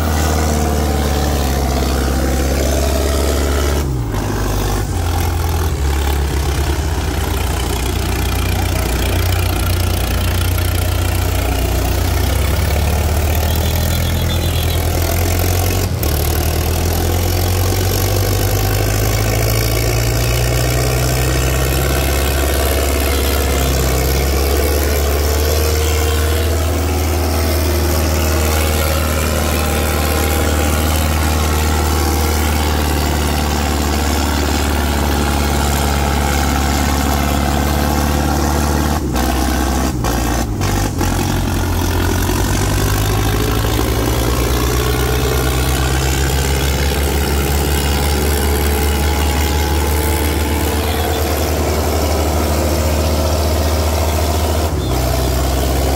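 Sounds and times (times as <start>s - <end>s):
tractor diesel engine running: 0.0s - 55.9s.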